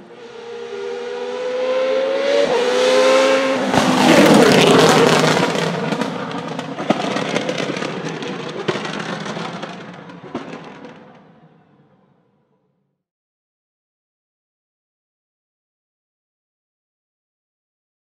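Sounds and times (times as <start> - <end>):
racing engine accelerating: 0.0 - 10.0
racing car passing by: 0.0 - 10.6
exhaust pops and cracks: 3.8 - 11.2.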